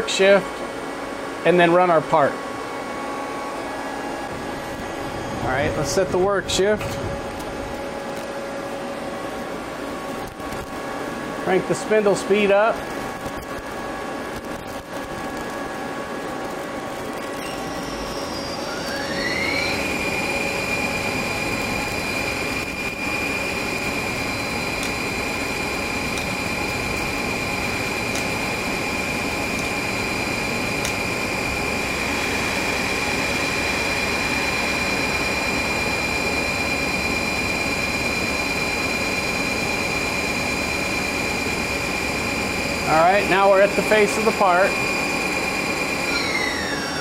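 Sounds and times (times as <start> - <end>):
machine hum: 0.0 - 47.0
lathe spindle whining: 16.8 - 47.0.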